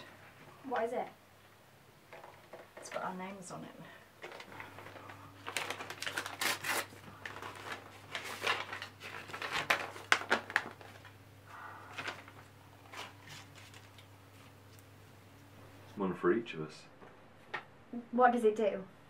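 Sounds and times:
paper rustling: 0:04.2 - 0:11.2, 0:11.8 - 0:14.8.

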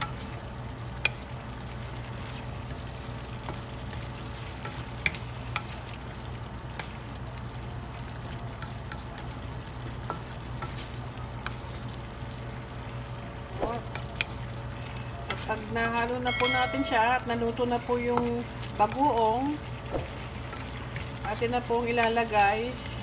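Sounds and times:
meat sizzling in a pan: 0:00.0 - 0:23.0
wooden spatula scraping a pan: 0:02.2 - 0:05.9, 0:08.3 - 0:11.9, 0:15.2 - 0:17.0, 0:17.6 - 0:22.9.

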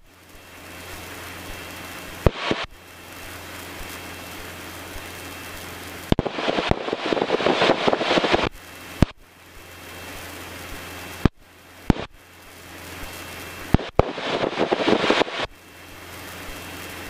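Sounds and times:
aircraft engine hum: 0:00.0 - 0:17.0
crackling radio static: 0:00.0 - 0:17.0
radio hiss: 0:00.0 - 0:17.0
radio clicks: 0:02.2 - 0:02.7, 0:06.1 - 0:09.2, 0:11.2 - 0:12.2, 0:13.7 - 0:15.5.

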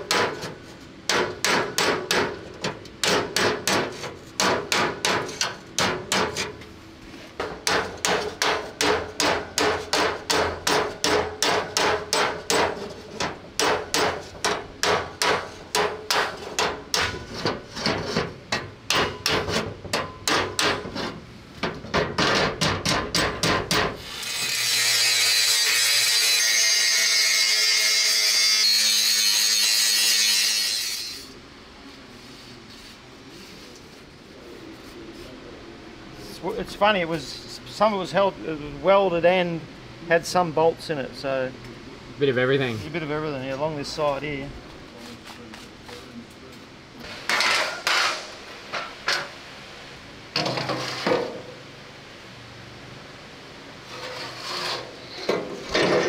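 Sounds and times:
hammer striking steel: 0:01.1 - 0:02.4, 0:03.0 - 0:06.5, 0:07.4 - 0:17.2, 0:18.5 - 0:20.8.

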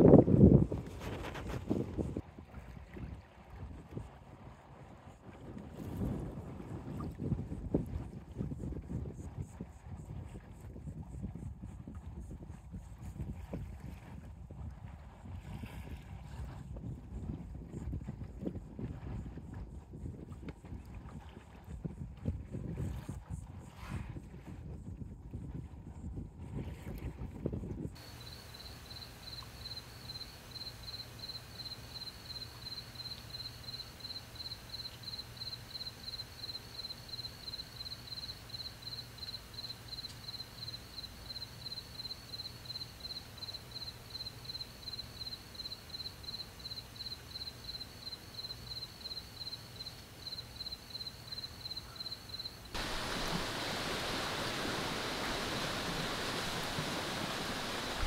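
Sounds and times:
wind: 0:00.0 - 0:58.0
waves: 0:00.7 - 0:09.1, 0:13.2 - 0:24.6, 0:28.0 - 0:58.0
cricket chirping: 0:28.0 - 0:58.0.

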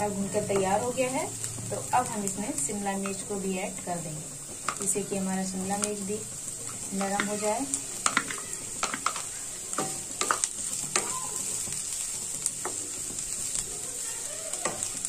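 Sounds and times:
vegetables sizzling in hot oil: 0:00.0 - 0:15.0
spatula scraping and tapping pan: 0:04.4 - 0:05.0, 0:05.8 - 0:13.7, 0:14.5 - 0:15.0.

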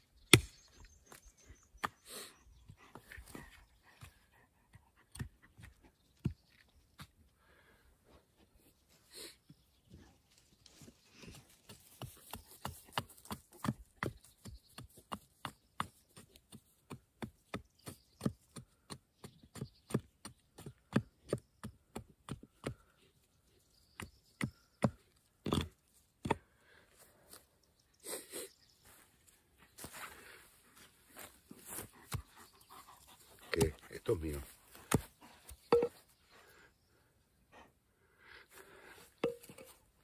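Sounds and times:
hatchet chopping wood: 0:00.3 - 0:00.8, 0:12.3 - 0:22.8, 0:34.7 - 0:36.0.

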